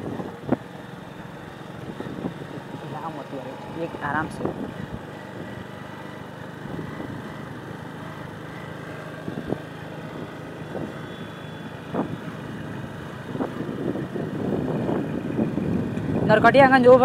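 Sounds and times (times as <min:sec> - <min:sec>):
motorcycle engine cruising: 0:00.0 - 0:17.0
wind rush over microphone: 0:11.9 - 0:12.3, 0:13.3 - 0:17.0.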